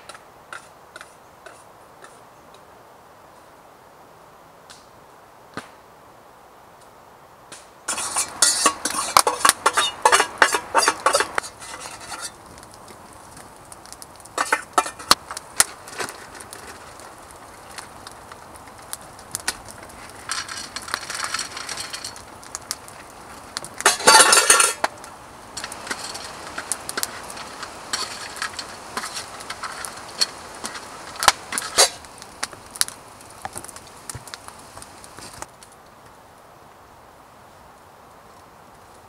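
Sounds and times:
metal spoon scraping plate: 0:07.9 - 0:12.4.

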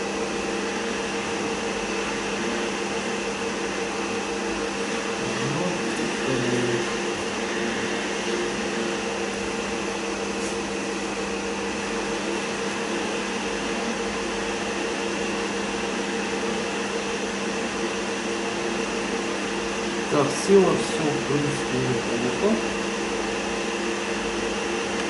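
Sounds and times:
steady machine hum: 0:00.0 - 0:25.0.

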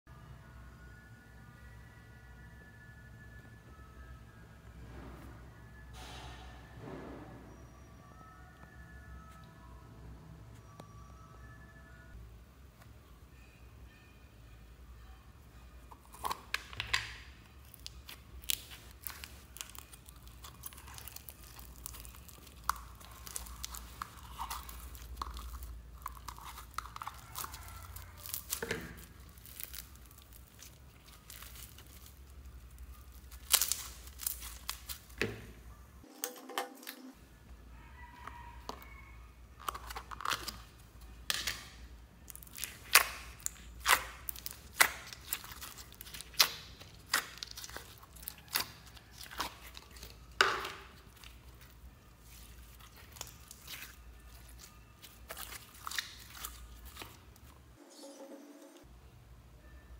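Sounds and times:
foam slime crackling: 0:17.6 - 0:35.2, 0:42.2 - 0:57.5.

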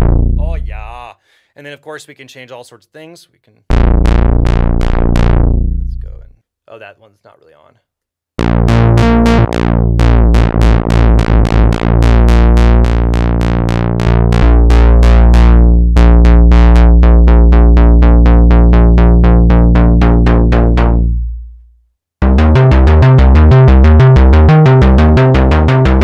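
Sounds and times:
synth bass line: 0:00.0 - 0:00.9, 0:03.7 - 0:06.3, 0:08.4 - 0:21.6, 0:22.2 - 0:26.0.

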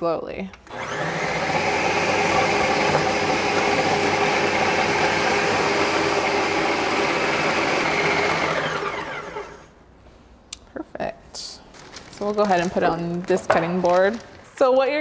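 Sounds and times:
food processor motor running: 0:00.7 - 0:09.7.

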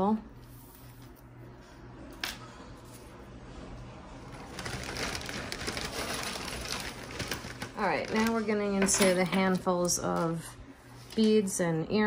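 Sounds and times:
plastic bag crackling: 0:04.2 - 0:10.2.

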